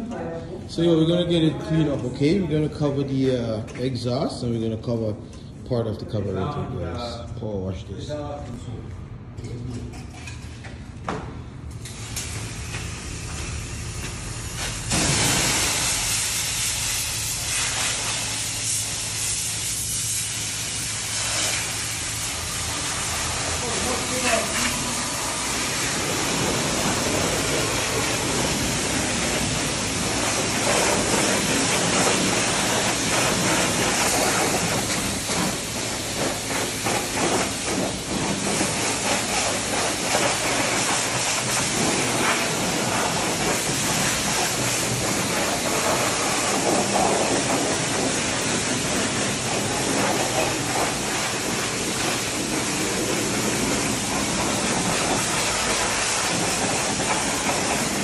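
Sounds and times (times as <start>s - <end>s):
pressure washer spraying water: 11.8s - 58.0s.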